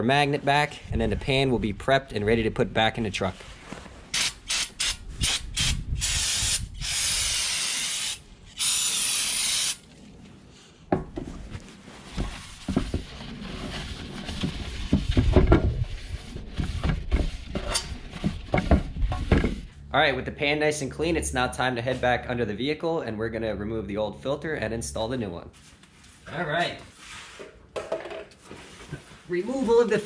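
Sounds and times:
aerosol spraying into metal pan: 4.2 - 9.8.

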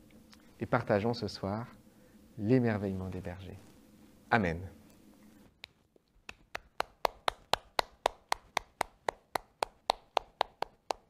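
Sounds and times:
child clapping hands: 6.3 - 11.0.

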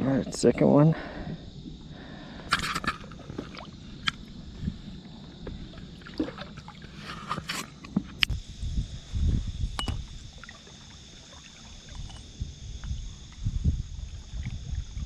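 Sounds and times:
water splashing: 2.5 - 7.5, 10.0 - 12.3.

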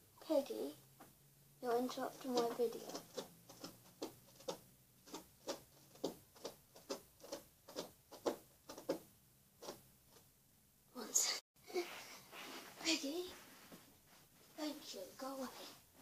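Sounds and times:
pet scratching carpet: 1.7 - 10.2.

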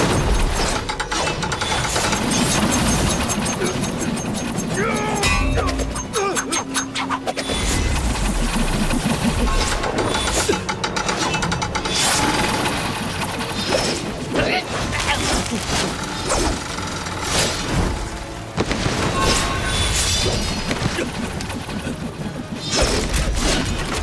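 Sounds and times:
mechanical clanking: 0.0 - 14.4
film score music: 0.0 - 24.0.

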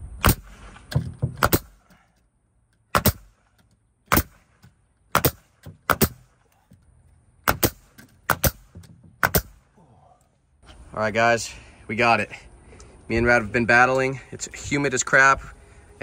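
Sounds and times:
nail gun firing: 0.2 - 1.8, 2.9 - 3.4, 4.1 - 6.3, 7.4 - 9.6.

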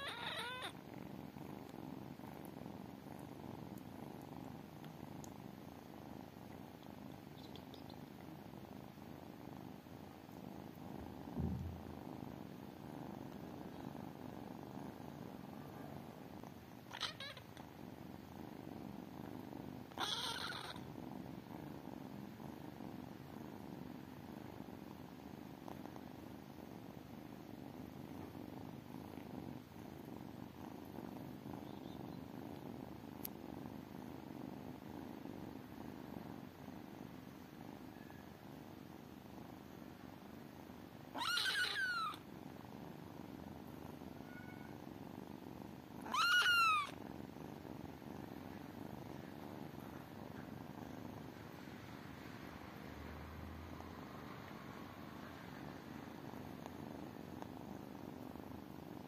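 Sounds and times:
high-pitched kitten calls: 0.0 - 0.7, 16.9 - 17.4, 20.0 - 20.8, 41.2 - 42.2, 44.2 - 44.8, 46.0 - 46.9
kittens purring: 0.0 - 59.0.

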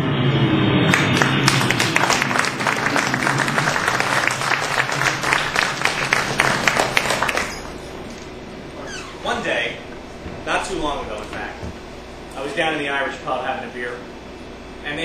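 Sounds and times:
audience applauding: 0.9 - 8.4.

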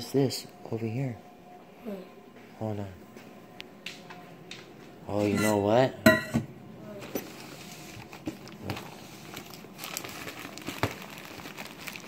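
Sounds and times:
candy wrappers crinkling: 7.7 - 12.0.

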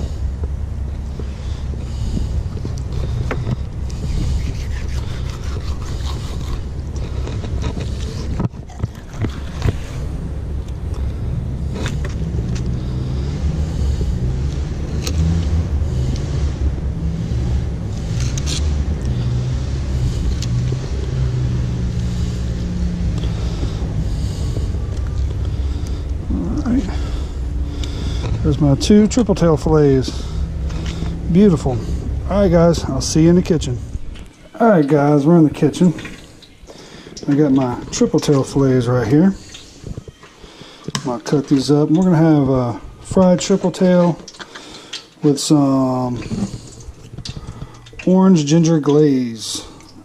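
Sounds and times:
low engine hum: 0.0 - 40.4, 41.1 - 50.0
steady low rumble: 0.0 - 50.0
knife slicing and scraping fish: 3.9 - 10.0.

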